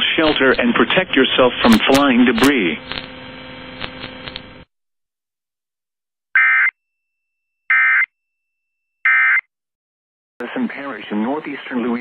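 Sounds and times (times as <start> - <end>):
buzzy data bursts: 0.0 - 4.7.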